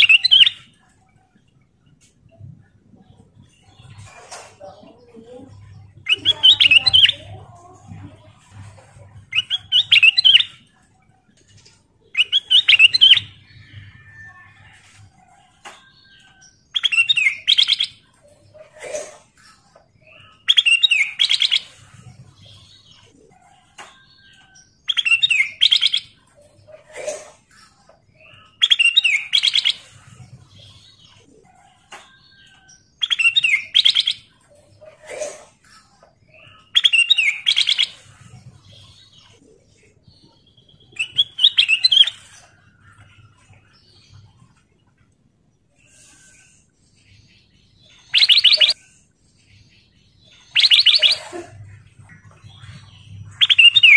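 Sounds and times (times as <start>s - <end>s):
bird singing warbled phrases: 0.0s - 14.8s, 15.4s - 53.9s.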